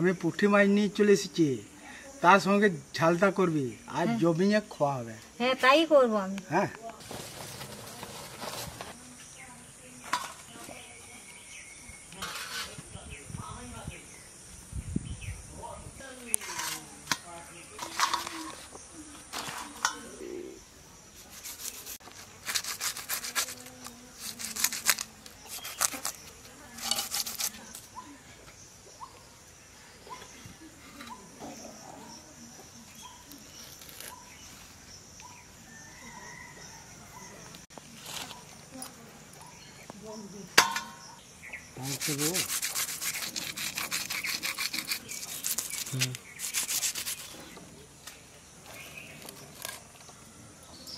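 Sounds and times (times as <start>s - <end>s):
fish scraped on rough stone: 21.2s - 27.8s, 41.9s - 47.6s.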